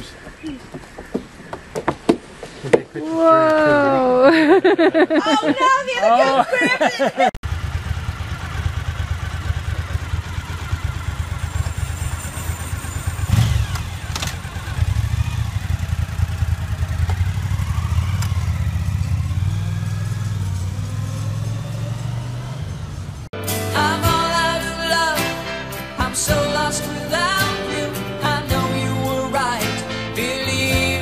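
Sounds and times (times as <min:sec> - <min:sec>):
motorcycle engine idling: 0:07.4 - 0:23.2.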